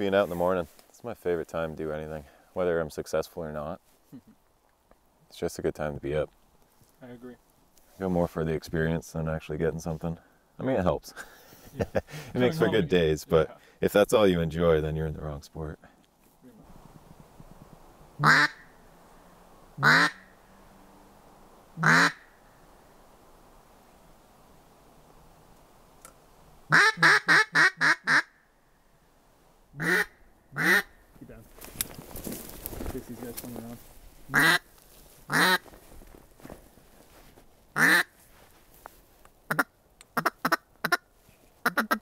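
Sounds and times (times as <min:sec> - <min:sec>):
duck call quacks: 0:18.2 - 0:18.7, 0:19.8 - 0:20.3, 0:21.8 - 0:22.3, 0:26.7 - 0:28.3, 0:29.8 - 0:30.9, 0:34.3 - 0:34.6, 0:35.3 - 0:35.6, 0:37.8 - 0:38.1, 0:39.5 - 0:41.0, 0:41.6 - 0:42.0.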